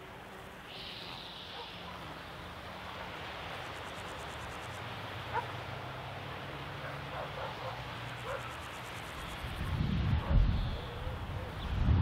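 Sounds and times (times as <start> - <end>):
wind buffeting microphone: 9.4 - 12.0.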